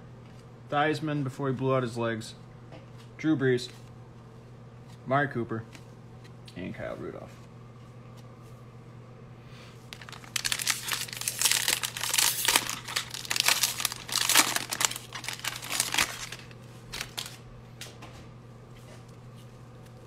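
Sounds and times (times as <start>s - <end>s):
foil wrapper tearing and crinkling: 9.9s - 17.4s.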